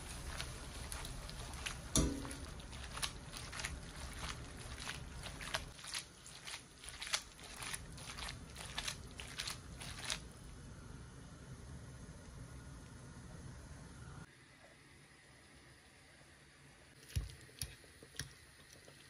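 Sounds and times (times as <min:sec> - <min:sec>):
pasta tossed in a frying pan: 0:00.0 - 0:10.3.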